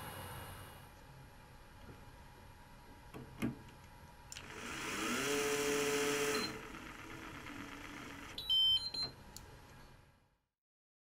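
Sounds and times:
electric screwdriver motor whine: 4.4s - 8.4s.

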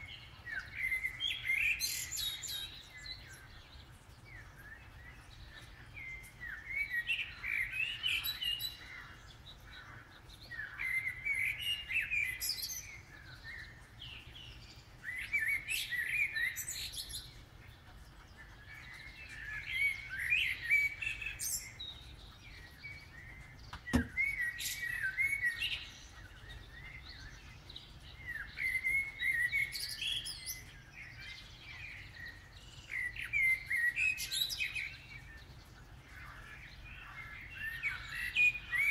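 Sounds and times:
blackbird singing: 0.0s - 38.9s.

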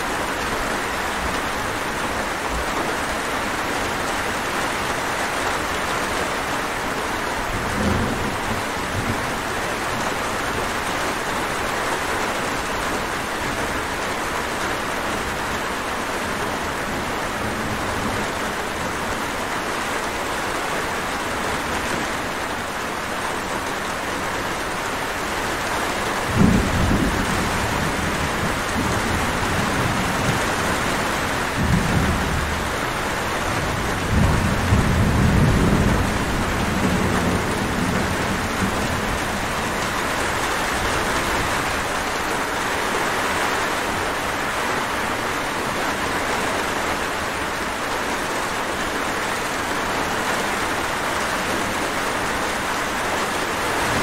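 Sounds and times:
heavy rainfall: 0.0s - 54.0s
thunder rumbling: 26.2s - 42.3s.

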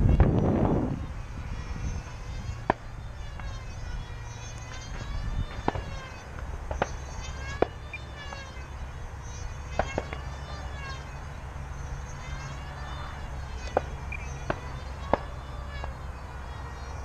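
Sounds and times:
rc plane motor buzzing whine: 0.0s - 17.0s.

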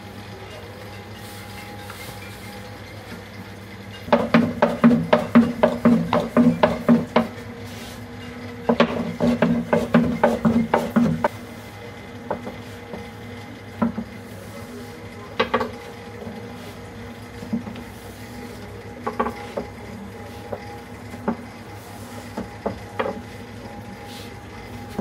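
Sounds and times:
rolling pin clacking on wooden board: 4.1s - 7.4s, 8.7s - 11.3s.

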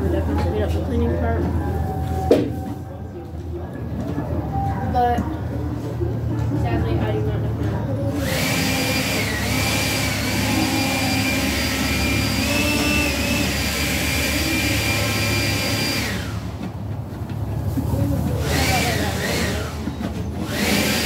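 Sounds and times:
motor whining: 8.0s - 16.8s, 18.4s - 21.0s.

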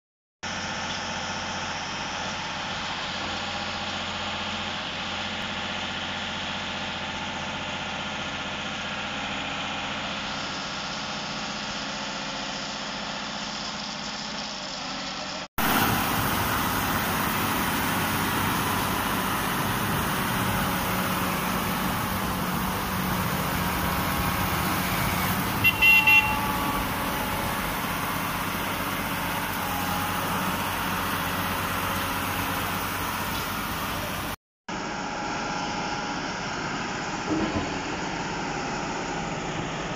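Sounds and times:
machine engines running: 13.1s - 39.9s
short horn beeps: 25.6s - 26.9s.

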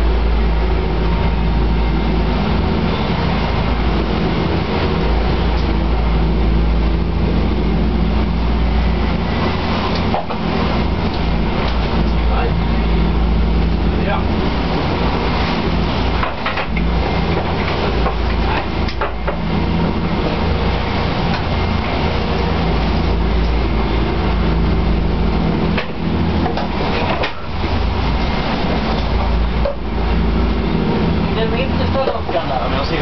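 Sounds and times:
boat engines droning: 0.0s - 33.0s
hull knocking on waves: 9.1s - 12.3s, 14.2s - 22.1s.

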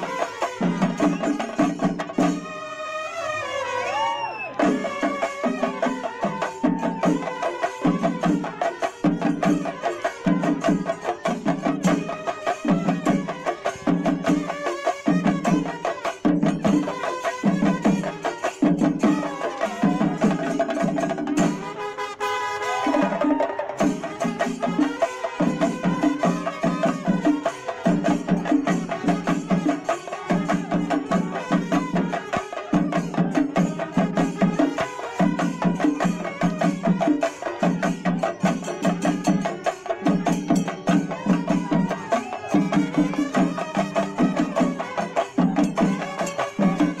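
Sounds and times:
music with fast dense percussion: 0.0s - 2.8s, 4.6s - 21.9s, 22.7s - 47.0s.

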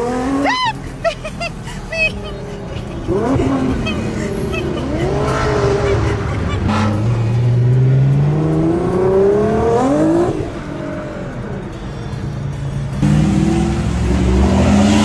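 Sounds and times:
car engine revving: 0.0s - 11.8s, 12.8s - 15.0s.

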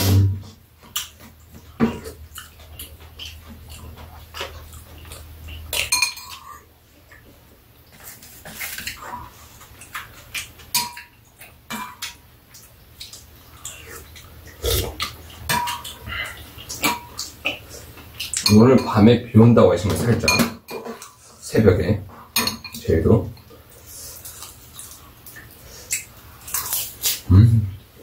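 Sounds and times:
utensils clinking against bowls: 4.4s - 6.6s, 10.7s - 12.2s, 15.0s - 19.2s, 19.8s - 21.4s, 22.3s - 23.5s.

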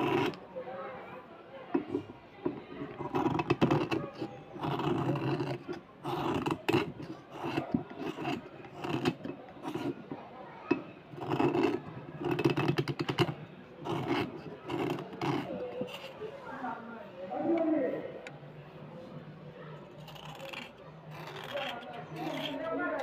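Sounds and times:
knife scraping slate pencil: 0.0s - 0.4s, 1.8s - 10.1s, 10.7s - 16.2s, 19.8s - 23.0s.

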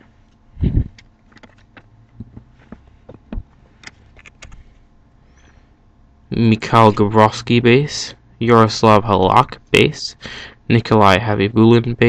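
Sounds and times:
trading cards clicking and tapping: 0.8s - 4.6s.

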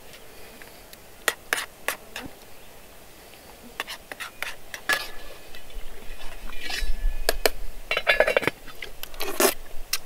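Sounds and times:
metal cookware clinking: 7.9s - 8.5s.

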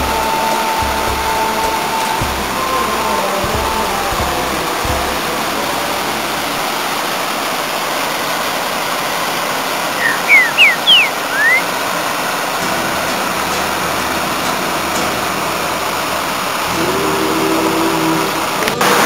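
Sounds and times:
waterfall rushing over rocks: 0.2s - 19.0s
bird whistling: 10.0s - 11.7s.

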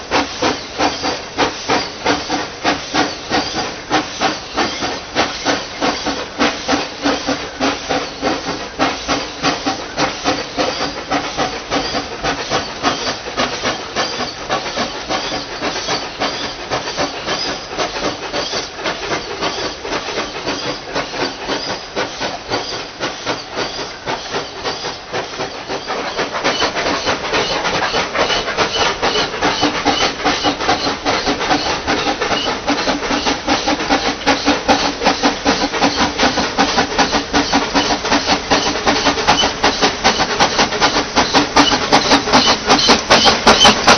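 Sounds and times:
steam hiss: 0.0s - 43.9s
steam locomotive chuffing: 0.0s - 43.9s.

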